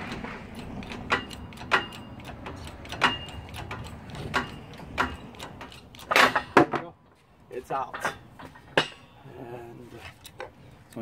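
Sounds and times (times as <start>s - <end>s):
metallic clicks with ring: 0.5s - 6.4s.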